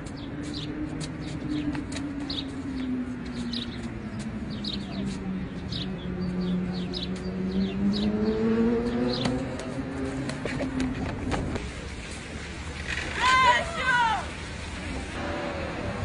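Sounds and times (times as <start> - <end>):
small birds chirping: 0.0 - 10.0
vehicle engine humming: 0.0 - 16.0.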